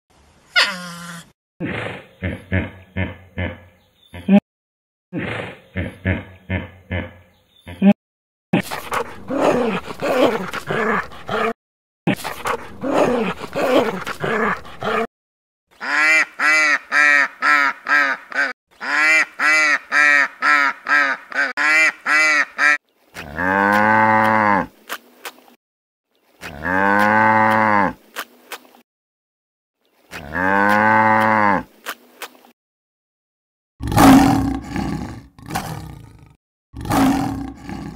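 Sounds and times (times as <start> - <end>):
short repeated animal calls: 0.5 - 2.0
cow mooing: 26.5 - 28.0, 30.2 - 31.6
rough noisy animal call: 36.8 - 37.9.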